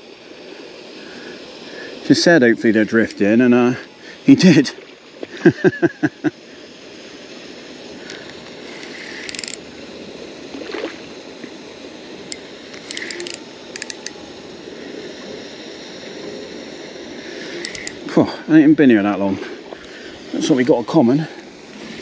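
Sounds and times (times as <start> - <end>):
steady hiss: 0.0 - 22.0
fishing reel ratcheting: 2.8 - 3.3, 8.1 - 9.6, 12.3 - 14.2, 17.5 - 18.0.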